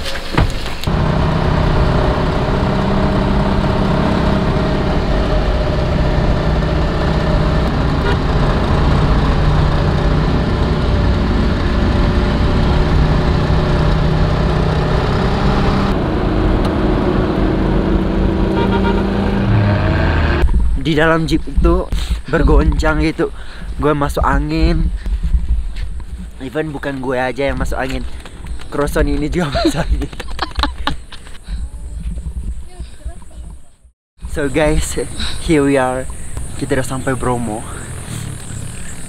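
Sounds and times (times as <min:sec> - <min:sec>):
road noise: 0:00.0 - 0:24.2, 0:34.2 - 0:39.0
car engine running: 0:00.8 - 0:20.4, 0:36.0 - 0:39.0.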